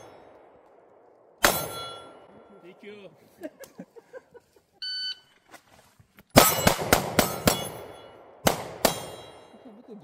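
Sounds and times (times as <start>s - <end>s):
pistol shots: 1.4s - 2.2s, 6.3s - 9.4s.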